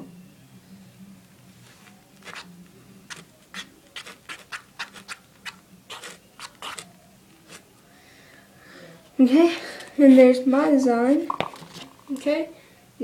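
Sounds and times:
toothpick scratching shaving cream: 0:02.2 - 0:02.5, 0:03.1 - 0:07.6.

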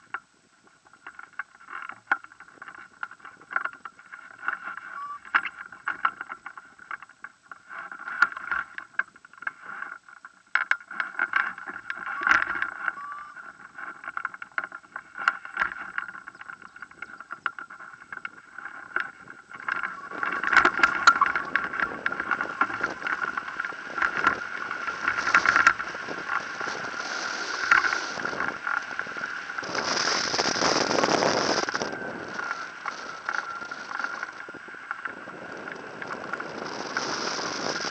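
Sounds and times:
wind rushing on microphone: 0:15.4 - 0:37.9
high-pitched hum: 0:19.6 - 0:37.9.

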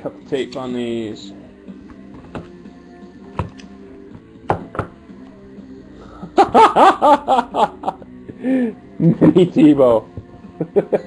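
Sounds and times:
faint background music: 0:00.0 - 0:11.0
person laughing: 0:06.4 - 0:09.5, 0:10.6 - 0:11.0.

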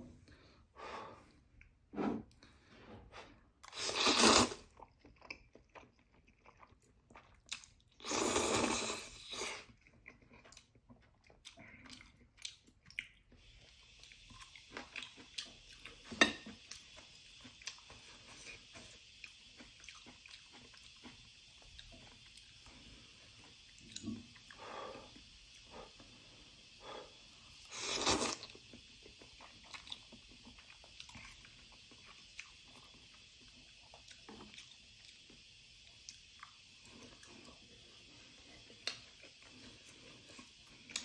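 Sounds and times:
loud noodle slurps: 0:03.7 - 0:04.7, 0:08.0 - 0:09.7, 0:27.7 - 0:28.5
wet chewing: 0:08.6 - 0:24.7
steady hiss: 0:13.5 - 0:41.0.

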